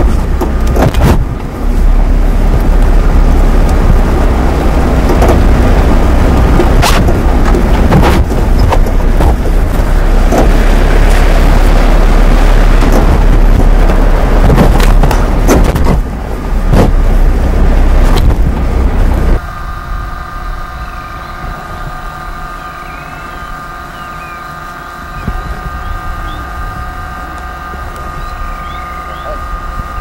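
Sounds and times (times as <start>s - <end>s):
sharp knocks and jolts: 0.0s - 1.4s, 6.3s - 17.3s
steady hum: 0.0s - 30.0s
vehicle engine rumbling: 0.0s - 30.0s
faint high chirps: 20.6s - 26.6s, 28.1s - 29.4s.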